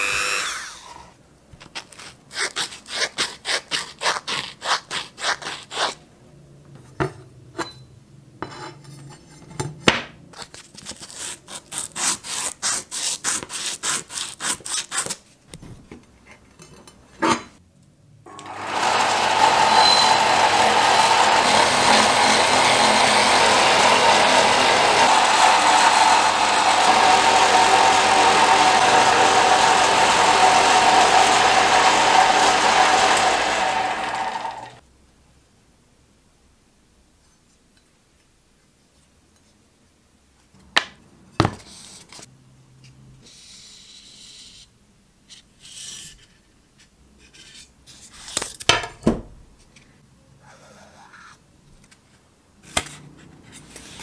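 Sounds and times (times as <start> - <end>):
polishing wheel grinding whir: 0.0 - 1.1, 18.3 - 34.8.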